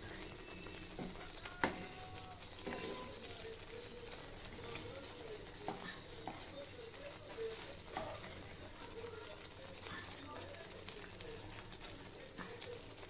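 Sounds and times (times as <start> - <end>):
gravy simmering in a pan: 0.0 - 13.0
spatula stirring: 0.0 - 13.0
spatula knocking on pan: 1.0 - 2.0.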